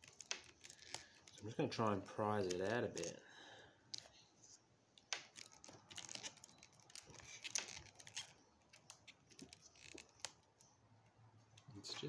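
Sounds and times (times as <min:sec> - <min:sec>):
clicks and crackles of prying: 0:00.0 - 0:03.2, 0:05.0 - 0:10.7.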